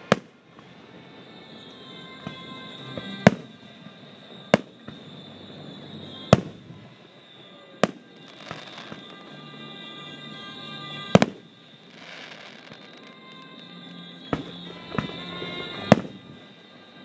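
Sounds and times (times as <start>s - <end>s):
firework shells bursting: 7.8s - 9.2s.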